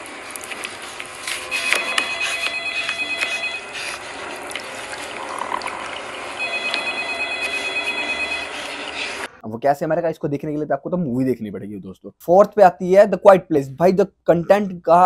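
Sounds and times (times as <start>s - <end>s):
shrill pulsing electronic tones: 5.9s - 9.3s.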